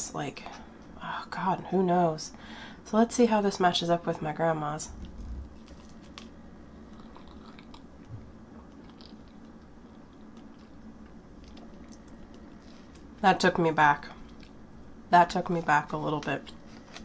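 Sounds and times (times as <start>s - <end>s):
soft chewing: 4.9s - 13.2s, 14.1s - 14.9s.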